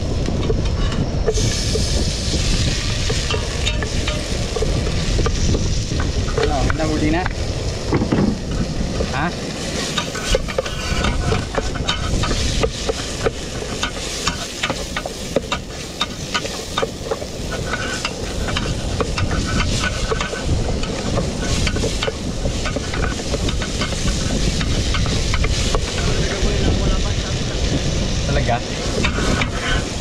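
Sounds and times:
vegetables sizzling: 1.3s - 30.0s
spatula scraping pot: 9.8s - 26.2s.

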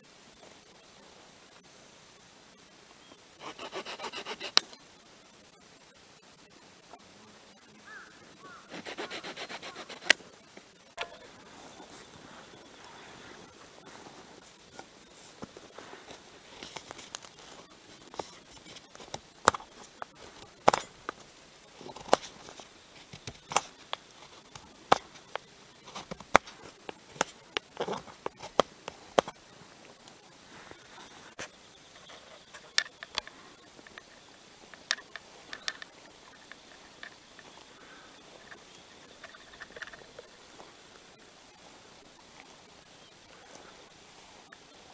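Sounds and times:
knife scraping stick: 3.4s - 4.8s, 8.7s - 10.2s.

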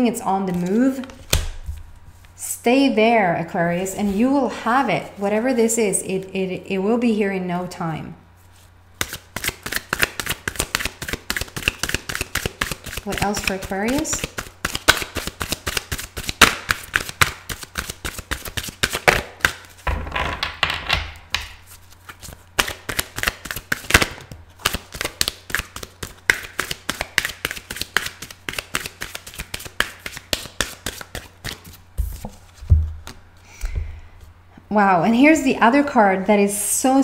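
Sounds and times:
cards being shuffled: 0.5s - 2.4s, 8.4s - 19.8s, 21.3s - 33.8s
card slaps and flicks: 14.2s - 19.7s, 22.6s - 32.4s.

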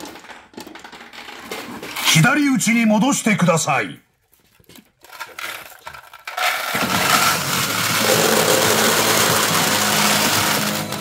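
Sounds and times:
steel balls clattering: 5.0s - 11.0s.

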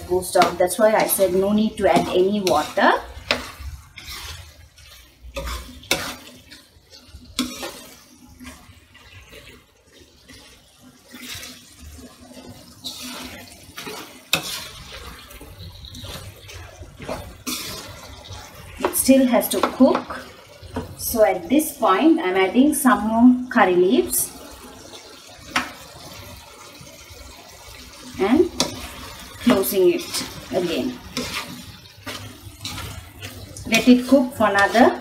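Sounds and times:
spatula scraping frying pan: 0.0s - 21.0s, 28.2s - 35.0s
spatula stirring wet food: 0.0s - 21.4s, 23.0s - 35.0s.

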